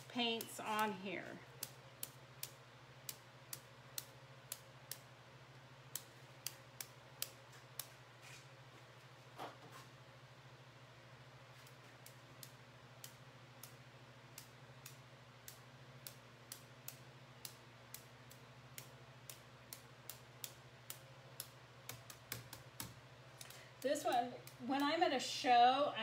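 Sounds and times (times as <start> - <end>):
brush tapping light ticks: 11.6 - 25.0.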